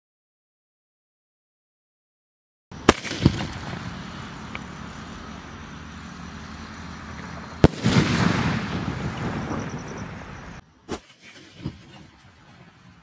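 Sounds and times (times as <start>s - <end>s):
firework shell bursting: 2.7s - 10.3s, 10.9s - 13.0s
firework launch thump: 2.8s - 3.9s, 7.6s - 9.7s, 10.9s - 12.3s
rumbling tail: 7.2s - 10.6s.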